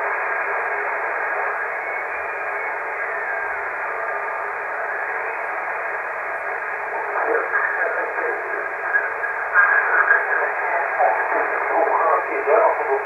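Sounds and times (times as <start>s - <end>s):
radio static hiss: 0.0s - 13.0s
garbled radio voice: 6.9s - 13.0s.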